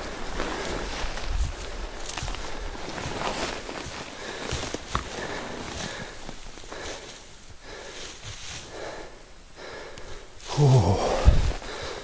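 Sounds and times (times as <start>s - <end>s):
heavy quick breathing: 4.0s - 12.0s.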